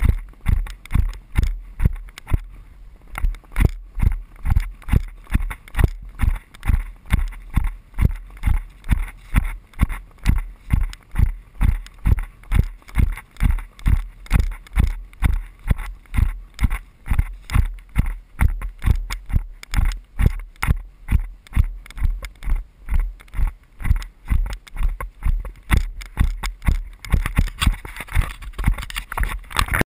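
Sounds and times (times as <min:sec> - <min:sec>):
horse hoofbeats on sand: 0:00.0 - 0:02.5, 0:03.2 - 0:29.4
camera jolting: 0:23.4 - 0:29.8.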